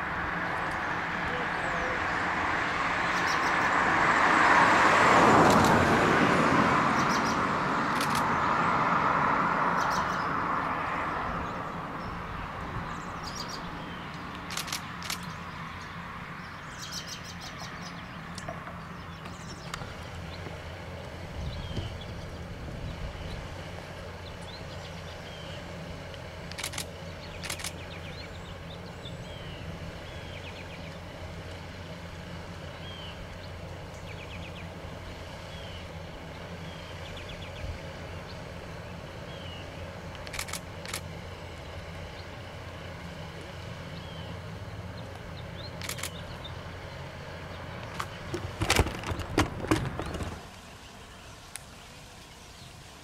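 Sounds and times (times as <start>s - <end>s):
low rumble of distant traffic: 0.0s - 53.0s
sharp clicks: 5.4s - 5.8s, 7.9s - 8.3s, 14.1s - 15.4s, 26.1s - 27.9s, 40.1s - 41.1s, 45.8s - 46.2s, 47.8s - 50.4s
crackling and rustling: 47.8s - 50.7s.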